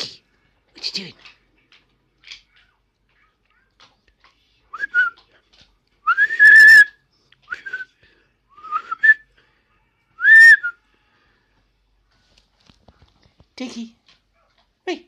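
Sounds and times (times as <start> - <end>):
person whistling: 6.1 - 7.9, 8.5 - 9.2, 10.2 - 10.8.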